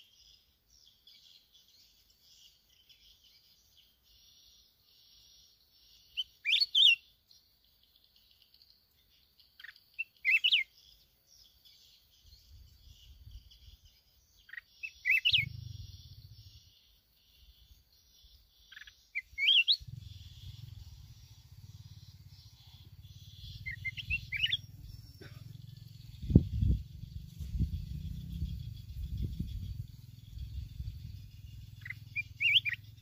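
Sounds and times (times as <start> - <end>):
bird whistling phrases: 10.2 - 10.6, 14.5 - 15.5, 18.7 - 19.9, 23.6 - 24.8, 31.8 - 32.8
low rumble: 19.8 - 32.1.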